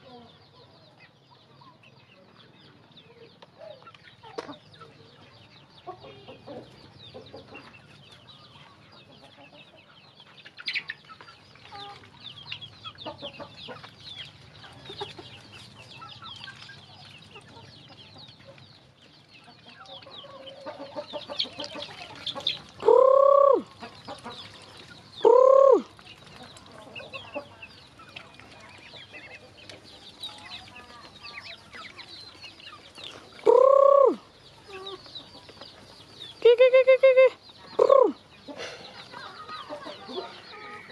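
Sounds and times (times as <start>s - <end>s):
chickens clucking: 0.0s - 40.9s
beaks pecking feed: 10.3s - 36.4s
loud bird calls: 19.5s - 26.0s, 28.9s - 40.9s.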